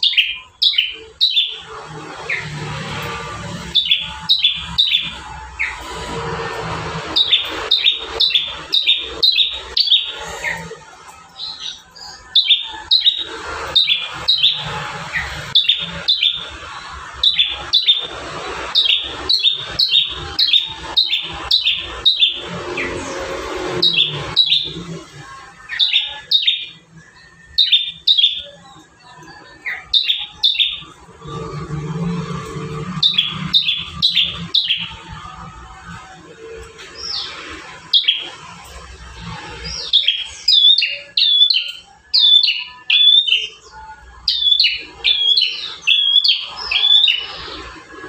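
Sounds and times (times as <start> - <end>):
bird chirping sharply: 0.0 - 25.1, 25.7 - 35.2.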